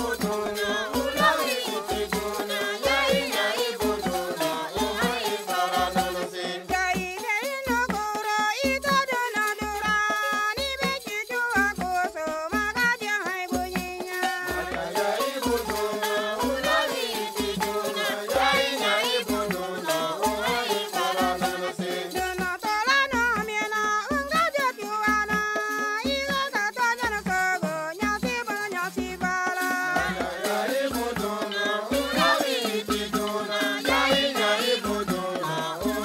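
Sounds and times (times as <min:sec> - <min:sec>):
mixed choir singing: 0:00.0 - 0:06.7, 0:14.6 - 0:22.3, 0:30.0 - 0:36.0
low percussion beat: 0:00.0 - 0:23.6, 0:25.2 - 0:36.0.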